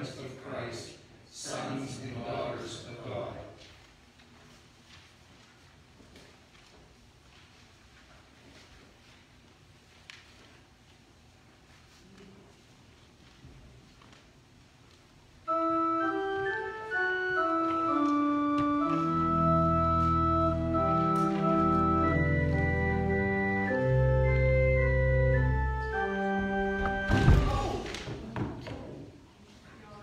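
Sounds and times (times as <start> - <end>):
organ playing held chords: 15.4 - 27.6.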